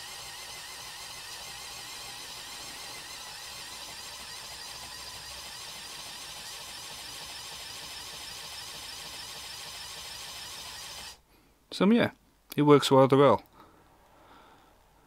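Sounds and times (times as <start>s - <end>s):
toy pneumatic compressor running: 0.0s - 11.2s.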